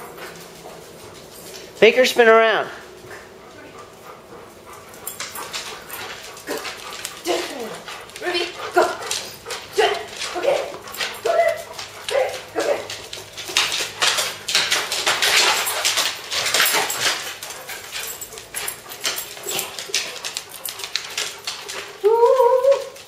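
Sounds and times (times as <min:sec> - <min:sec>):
dogs yipping and barking: 0:03.0 - 0:23.0
claws scrabbling on hardwood floor: 0:04.9 - 0:23.0.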